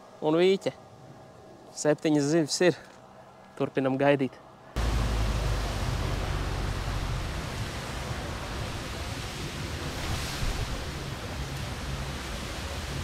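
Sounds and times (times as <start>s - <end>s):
distant motorboat drone: 4.6s - 13.0s
jet ski running: 4.8s - 9.9s
wind buffeting microphone: 4.8s - 13.0s.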